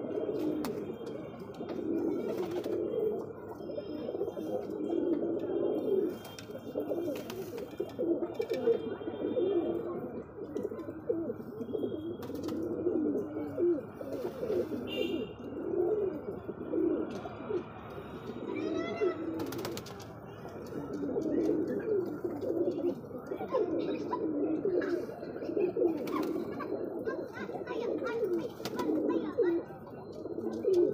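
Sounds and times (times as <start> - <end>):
pigeons cooing: 0.0 - 30.9.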